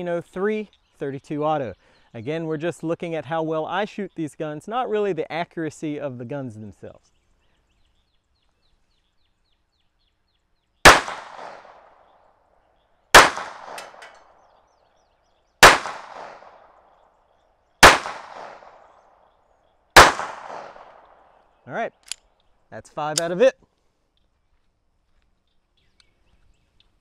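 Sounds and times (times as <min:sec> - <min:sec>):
pistol shots echoing: 0:10.9 - 0:12.0, 0:13.2 - 0:14.3, 0:15.6 - 0:16.8, 0:17.8 - 0:19.0, 0:20.0 - 0:21.4.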